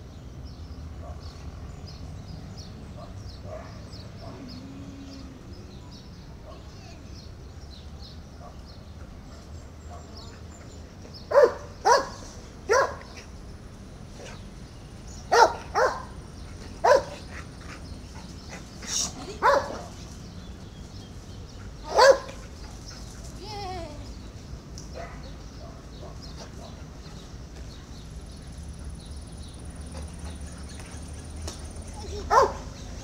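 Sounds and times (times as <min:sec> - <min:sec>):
dog barking: 0:11.3 - 0:13.1, 0:15.3 - 0:16.2, 0:16.8 - 0:17.2, 0:19.4 - 0:19.9, 0:21.9 - 0:22.4, 0:32.3 - 0:32.7.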